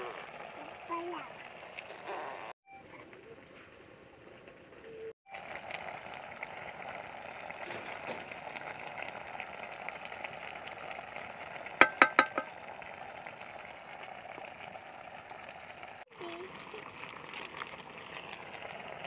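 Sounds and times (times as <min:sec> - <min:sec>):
chicken sizzling in hot oil: 0:00.0 - 0:02.5, 0:05.3 - 0:19.0
spoon clinking against metal pot: 0:11.8 - 0:12.5.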